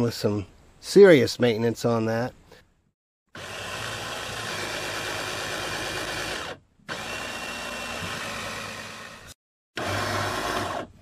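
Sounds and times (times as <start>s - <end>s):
cordless drill motor whining: 3.4s - 11.0s.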